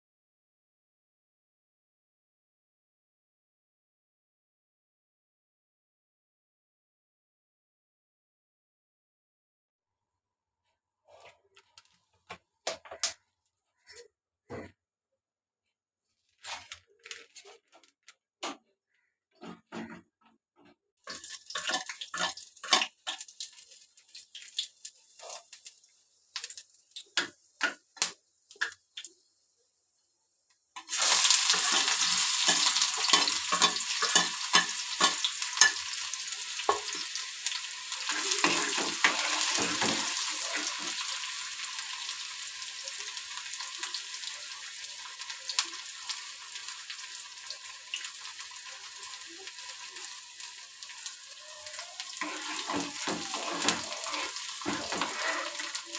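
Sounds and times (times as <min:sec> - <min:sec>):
food sizzling in hot oil: 0:21.0 - 0:29.5, 0:30.8 - 0:55.9
metal spoon scraping pan: 0:30.8 - 0:37.1, 0:38.1 - 0:41.1, 0:52.0 - 0:55.9.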